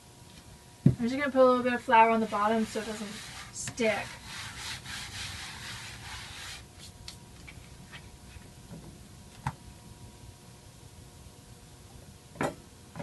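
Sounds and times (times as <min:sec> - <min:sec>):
hand brushing flour on board: 0:02.0 - 0:07.0.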